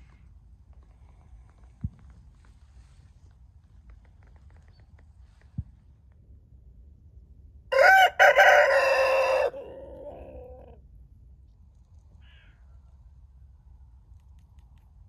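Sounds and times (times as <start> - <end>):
rooster crowing: 7.7 - 10.8.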